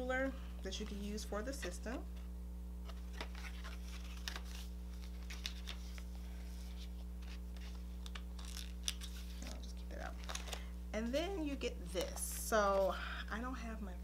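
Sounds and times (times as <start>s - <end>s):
steady low hum: 0.0s - 14.0s
paper rustling: 2.8s - 10.6s.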